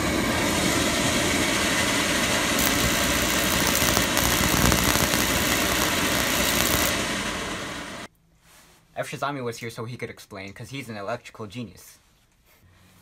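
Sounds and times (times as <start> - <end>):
oil burner motor and blower rushing: 0.0 - 8.1
igniter spark crackle: 2.0 - 8.1.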